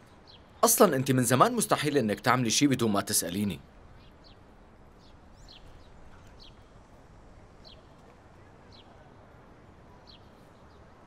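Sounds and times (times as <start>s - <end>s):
low outdoor background: 0.0s - 11.0s
faint bird chirps: 3.1s - 11.0s.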